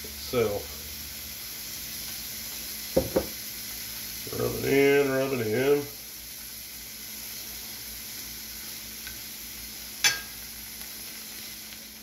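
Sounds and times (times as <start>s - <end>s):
meat sizzling on a griddle: 0.0s - 12.0s
metal spatula clinking on griddle: 10.0s - 10.4s.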